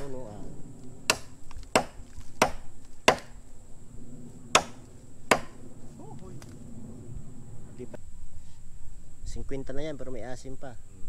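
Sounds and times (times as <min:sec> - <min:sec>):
bamboo chopped with a blade: 0:01.1 - 0:03.4, 0:04.6 - 0:05.6.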